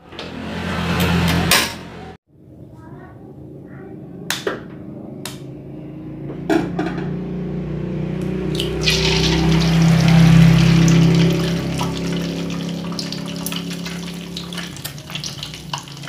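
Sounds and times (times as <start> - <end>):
egg cracking against a wok: 8.5 - 16.0
oil sizzling loudly: 8.5 - 16.0.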